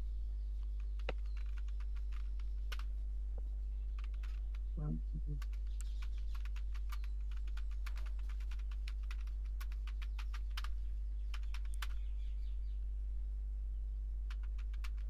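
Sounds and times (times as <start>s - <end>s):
low electrical hum: 0.0s - 15.0s
typing on computer keyboard: 1.0s - 2.9s, 4.0s - 4.6s, 5.4s - 12.0s, 14.3s - 15.0s.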